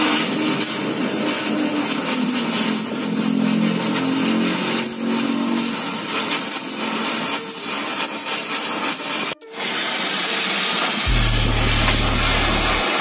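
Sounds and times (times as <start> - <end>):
power tool grinding metal: 0.0 - 13.0
low hum: 11.1 - 13.0.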